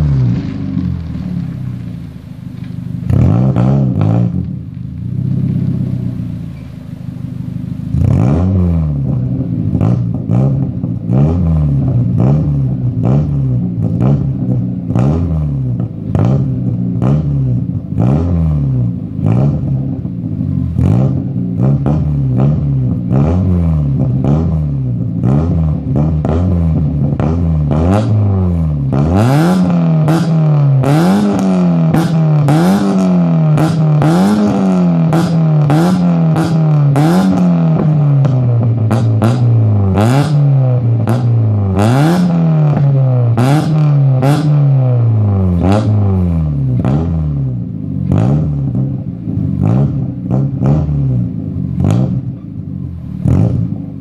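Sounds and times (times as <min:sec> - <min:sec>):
exhaust pops and crackles: 0:00.0 - 0:08.4, 0:23.9 - 0:44.6
car engine revving: 0:00.0 - 0:54.0.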